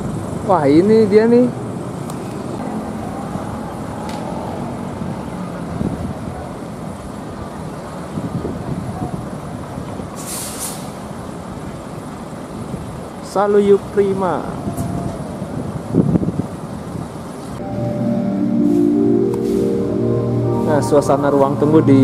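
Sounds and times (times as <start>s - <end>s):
air brakes hissing: 10.2s - 11.1s, 18.6s - 19.8s.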